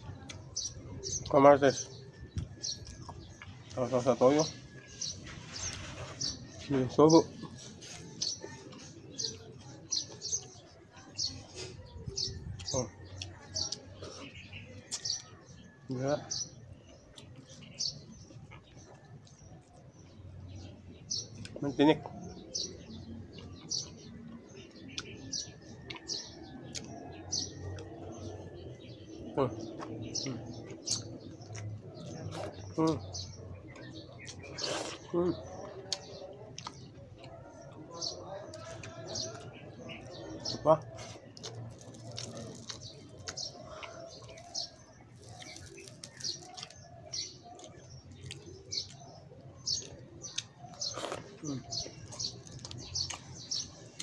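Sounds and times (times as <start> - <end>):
small birds chirping: 0.0 - 54.0
chewing sounds: 2.3 - 15.7, 16.5 - 54.0
mouth noises while eating: 22.7 - 54.0.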